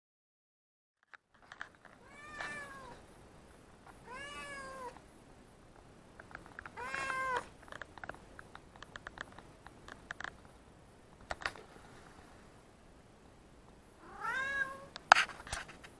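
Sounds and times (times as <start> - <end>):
cat meowing: 2.0 - 3.0, 4.0 - 5.0, 6.8 - 7.5, 14.0 - 15.0
faint clicks: 5.8 - 11.7.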